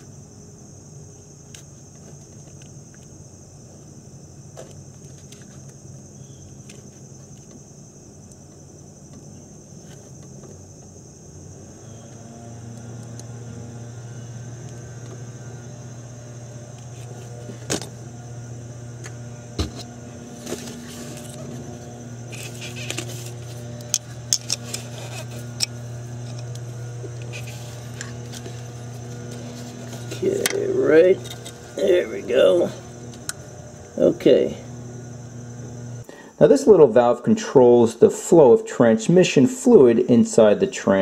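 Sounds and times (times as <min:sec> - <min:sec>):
steady low hum: 0:00.0 - 0:38.5
pick tool clicking and scraping metal: 0:23.8 - 0:28.4.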